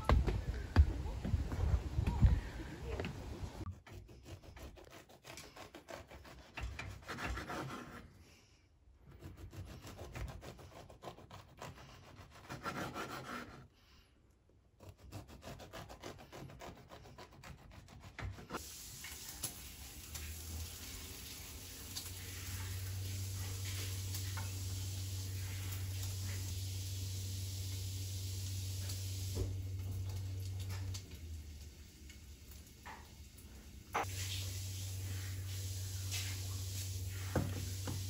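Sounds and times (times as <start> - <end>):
knife sawing through bread: 3.7 - 8.2, 9.0 - 13.8, 14.7 - 18.6.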